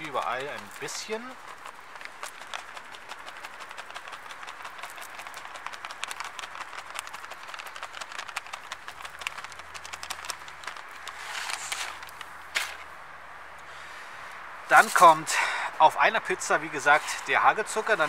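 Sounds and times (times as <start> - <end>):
plastic packet crinkling: 0.0 - 12.8
brittle crumbs rattling: 0.0 - 12.9.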